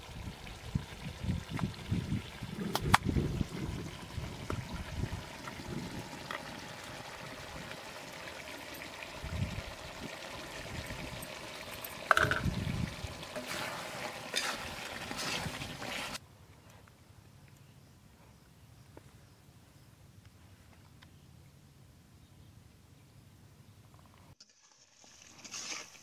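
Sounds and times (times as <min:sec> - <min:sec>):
curry bubbling and sizzling: 0:00.0 - 0:16.2, 0:24.4 - 0:26.0
outdoor background noise: 0:00.0 - 0:26.0
metal spatula scraping a pan: 0:13.3 - 0:16.2, 0:25.2 - 0:26.0.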